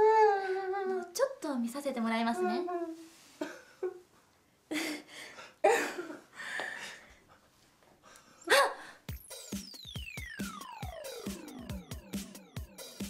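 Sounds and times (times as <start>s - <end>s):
whimpering sobs: 0.0s - 1.1s, 2.3s - 4.0s
ticking beat: 9.1s - 13.0s
falling electronic tone: 9.7s - 12.2s.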